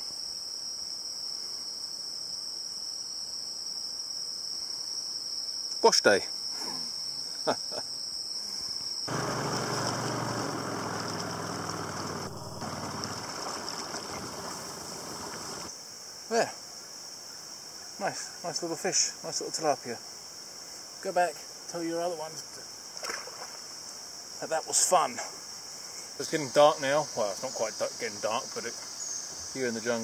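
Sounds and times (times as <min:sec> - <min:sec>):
insects droning: 0:00.0 - 0:30.0
low hum: 0:09.1 - 0:15.7.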